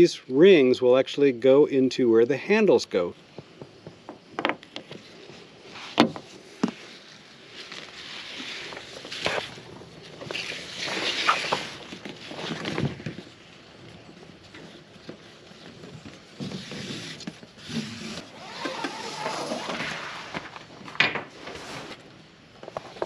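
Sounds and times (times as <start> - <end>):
nylon strap sliding: 4.8 - 13.4, 14.6 - 22.2.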